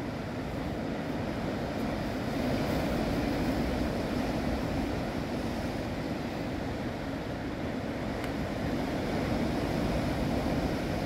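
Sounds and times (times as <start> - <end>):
sea surf breaking on rocks: 0.0 - 11.0.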